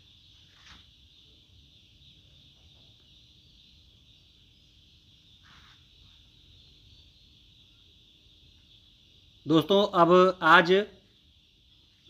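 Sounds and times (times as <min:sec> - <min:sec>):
soft rustle: 0:00.4 - 0:01.0, 0:05.4 - 0:06.2.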